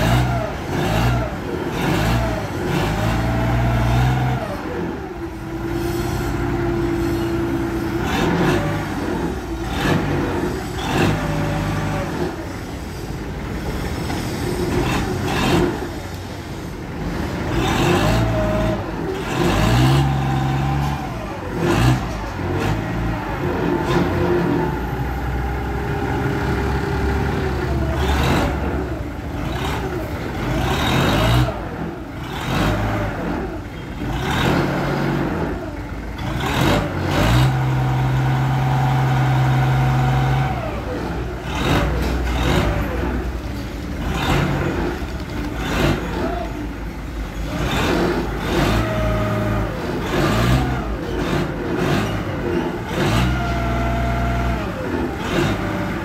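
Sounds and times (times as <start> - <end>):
forklift engine revving: 0.0 - 56.0.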